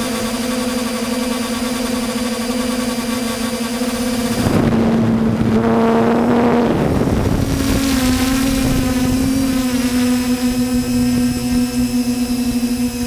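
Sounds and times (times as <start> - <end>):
drone propellers buzzing: 0.0 - 13.0
wind noise: 4.1 - 13.0.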